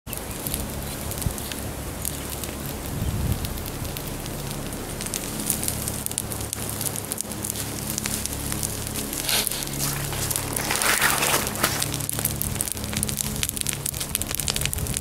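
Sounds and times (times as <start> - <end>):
campfire crackling and popping: 0.1 - 15.0
steady low hum: 0.1 - 15.0.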